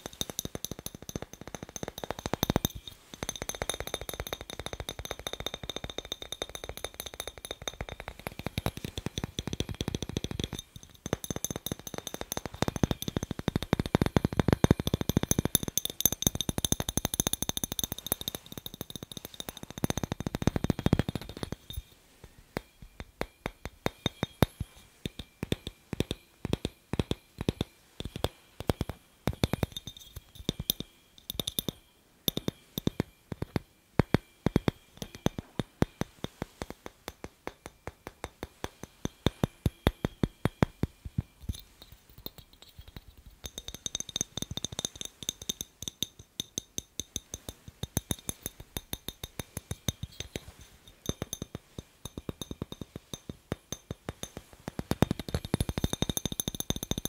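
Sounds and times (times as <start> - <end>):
fingers tapping on glass bulb: 0.0 - 57.0.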